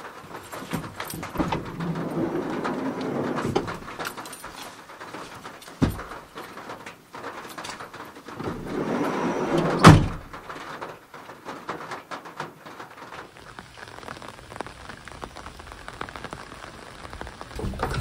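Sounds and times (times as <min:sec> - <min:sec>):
clothes and bag rustling: 0:00.2 - 0:09.8
sliding van door slamming: 0:01.3 - 0:04.0, 0:08.4 - 0:10.4.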